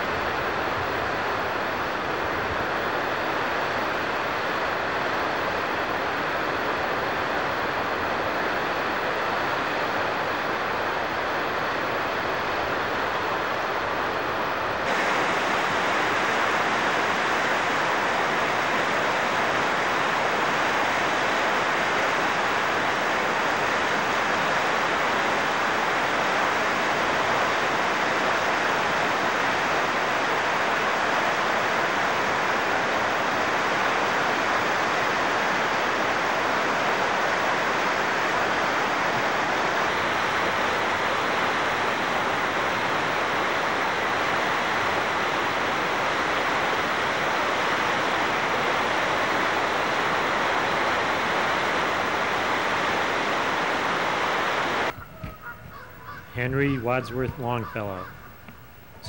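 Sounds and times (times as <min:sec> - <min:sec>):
river water rushing over rapids: 0:00.0 - 0:54.9.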